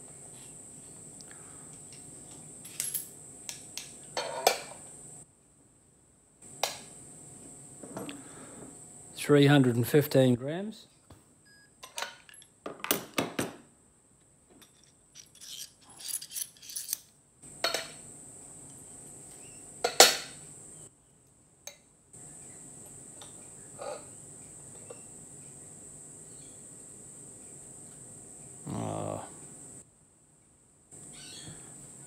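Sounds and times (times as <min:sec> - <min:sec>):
metal axles clinking and knocking: 0:14.6 - 0:17.0.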